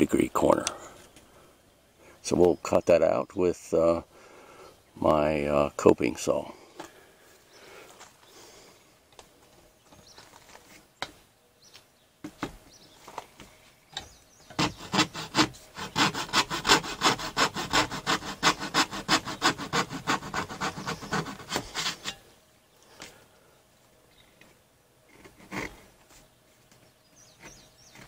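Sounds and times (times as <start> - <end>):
hand saw cutting plastic: 14.5 - 22.2.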